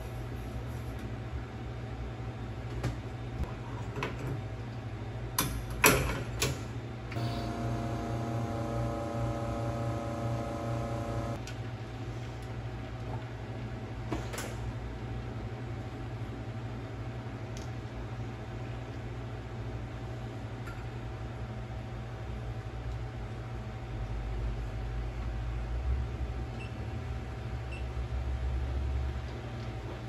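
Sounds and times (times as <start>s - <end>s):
low steady hum: 7.1s - 14.0s
espresso machine pump humming: 7.2s - 11.4s.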